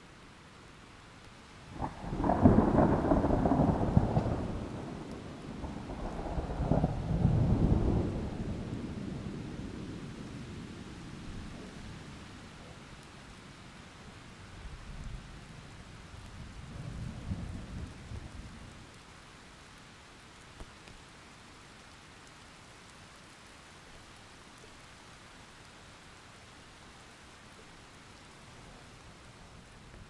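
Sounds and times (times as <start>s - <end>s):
steady rain: 0.0s - 30.0s
low rumble of thunder: 1.7s - 12.3s, 14.6s - 19.0s.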